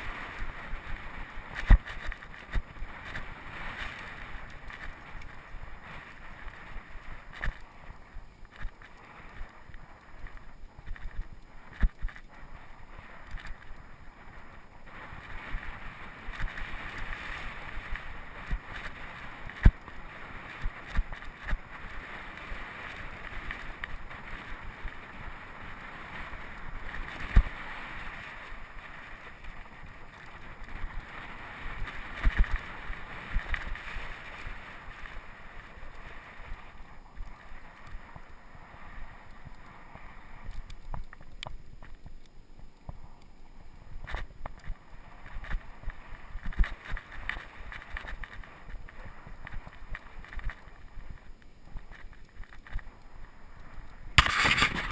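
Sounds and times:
tyre noise on dirt: 0.0s - 13.9s, 54.1s - 54.9s
bike rattling: 0.0s - 36.4s, 44.0s - 53.0s, 54.2s - 54.9s
wind on microphone: 0.0s - 54.9s.

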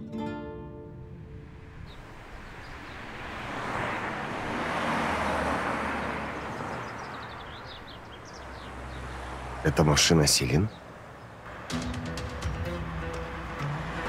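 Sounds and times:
car driving past: 1.2s - 9.6s, 12.7s - 14.0s.

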